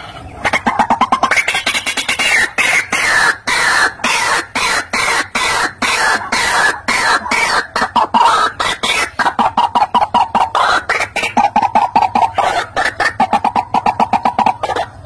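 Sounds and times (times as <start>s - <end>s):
bird harsh calls: 0.0s - 15.0s.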